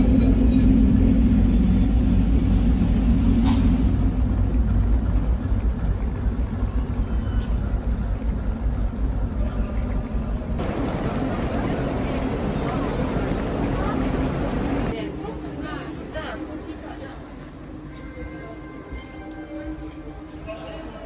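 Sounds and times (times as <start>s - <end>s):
diesel locomotive idling: 0.0s - 15.0s.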